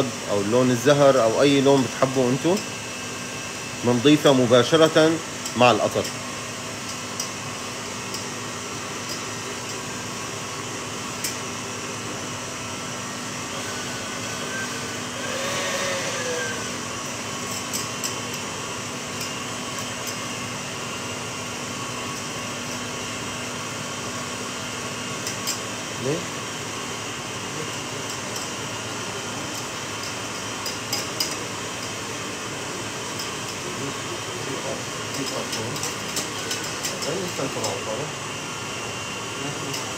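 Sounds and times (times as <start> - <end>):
kitchen appliance whirring: 0.0 - 39.9.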